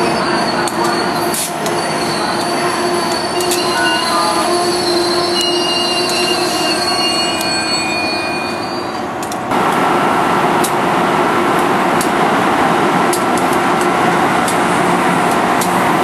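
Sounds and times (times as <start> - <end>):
high squealing tones: 0.0 - 9.1
train rumble: 0.0 - 16.0.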